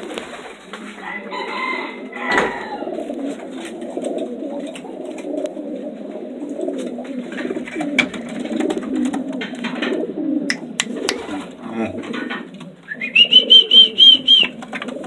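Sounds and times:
pigeons cooing: 0.0 - 15.0
sharp clicks: 10.5 - 11.3.

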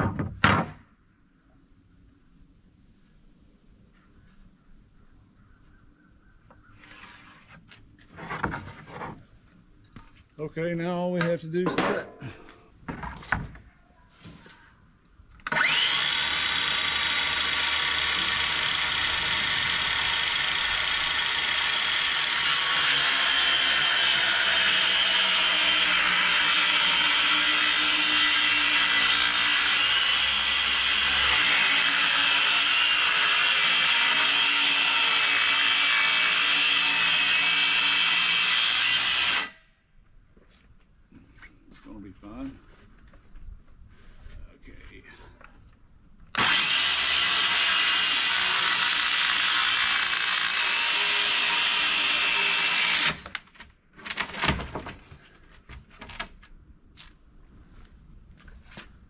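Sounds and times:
circular saw cutting plywood: 6.7 - 9.1, 15.5 - 39.6, 46.4 - 53.5.

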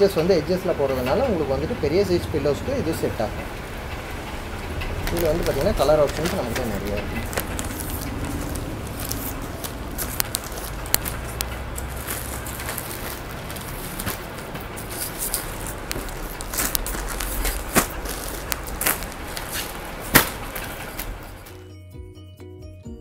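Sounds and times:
low background hum: 0.0 - 21.7
plastic wrapping crinkling: 4.2 - 21.6.

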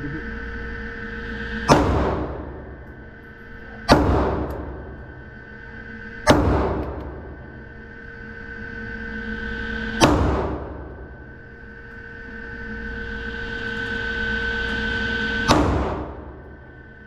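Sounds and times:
steady hum: 0.0 - 17.0
pistol shots ringing indoors: 1.7 - 2.5, 3.8 - 5.0, 6.2 - 7.2, 10.0 - 10.8, 15.4 - 16.3.

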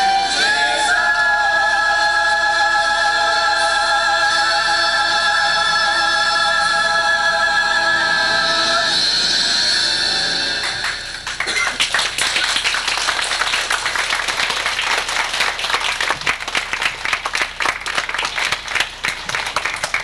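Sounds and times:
choir singing chord: 0.0 - 11.1
congregation applauding: 10.6 - 20.0.

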